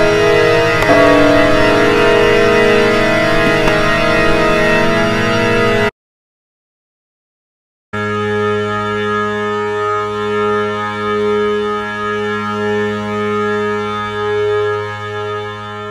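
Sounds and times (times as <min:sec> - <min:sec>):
held droning music chord: 0:00.0 - 0:05.9.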